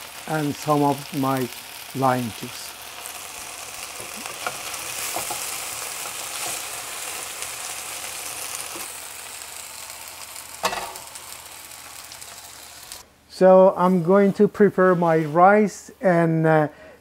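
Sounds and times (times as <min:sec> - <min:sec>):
okra sizzling in hot oil: 0:00.0 - 0:13.1.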